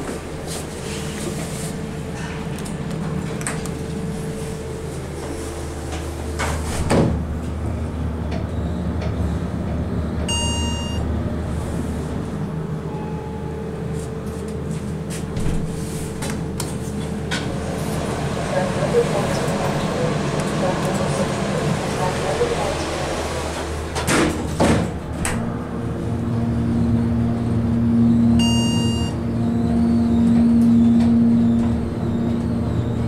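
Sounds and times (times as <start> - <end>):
elevator car humming: 0.0 - 33.0
elevator chime ding: 10.3 - 11.1, 12.8 - 13.9, 27.9 - 32.6.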